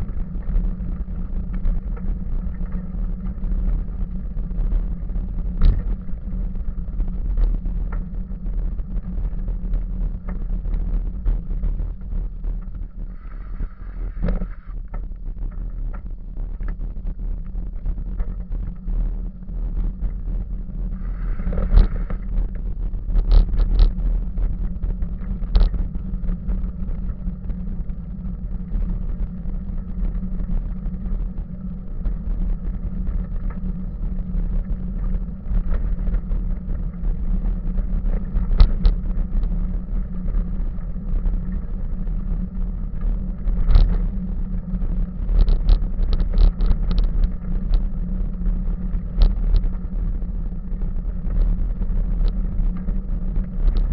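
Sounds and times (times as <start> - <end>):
bicycle tyres rumbling on gravel: 0.0 - 53.9
bicycle clicks and rattles: 45.3 - 47.8.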